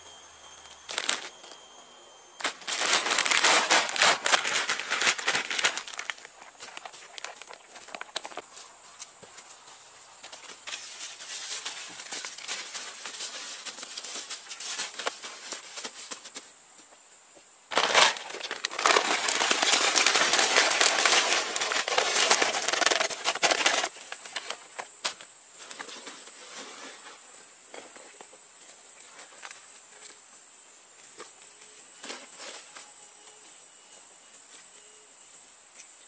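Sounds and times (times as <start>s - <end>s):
plastic sack crinkling: 0.9s - 1.4s, 2.4s - 8.5s, 17.7s - 24.6s
soil pouring from sack: 2.4s - 7.6s, 17.7s - 23.8s
hands scraping soil: 2.4s - 8.6s.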